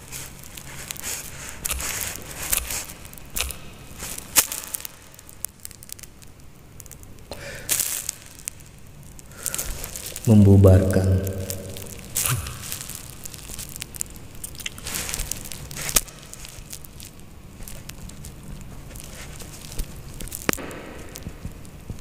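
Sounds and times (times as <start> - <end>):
man exhaling smoke: 7.3 - 7.8, 9.3 - 10.0.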